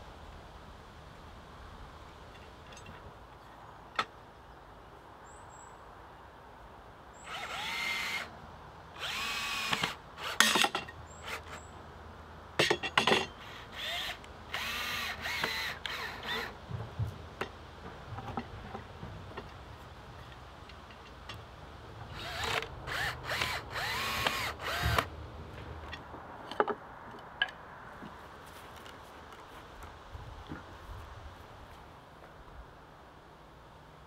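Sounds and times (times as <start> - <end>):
power drill driving screws into wood: 7.3 - 8.3, 9.0 - 11.6, 13.4 - 16.6, 22.1 - 25.1.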